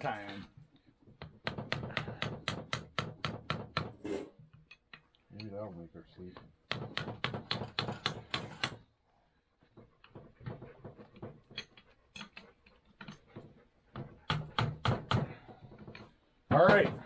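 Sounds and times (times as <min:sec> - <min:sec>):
tools clicking and tapping: 0:00.0 - 0:05.7, 0:06.3 - 0:08.9, 0:09.6 - 0:17.0
hammer tapping wrench: 0:01.2 - 0:03.9, 0:06.7 - 0:08.8.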